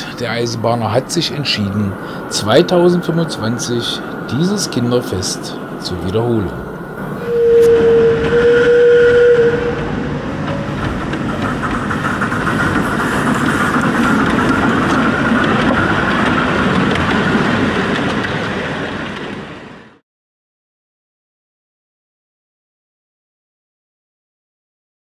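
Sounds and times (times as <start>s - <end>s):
train wheels rattling on rails: 0.0s - 20.0s
steam locomotive whistle: 7.0s - 10.4s.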